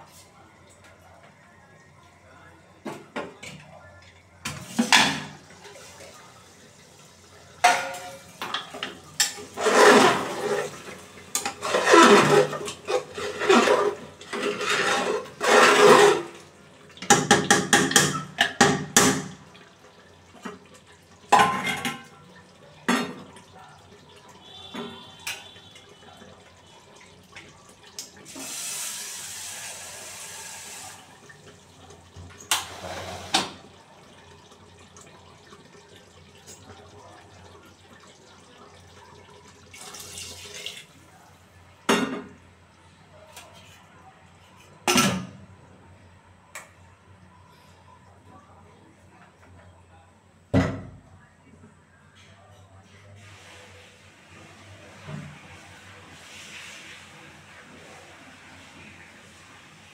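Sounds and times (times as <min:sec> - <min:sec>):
ladle scraping metal pot: 0:07.6 - 0:19.4.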